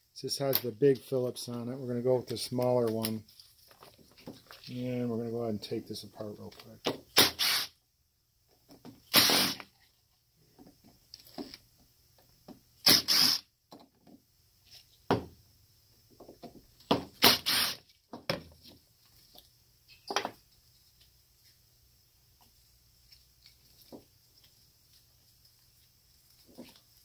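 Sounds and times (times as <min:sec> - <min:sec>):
impact driver bursts: 0:07.1 - 0:07.7, 0:09.1 - 0:09.6, 0:12.8 - 0:13.4, 0:17.2 - 0:17.8.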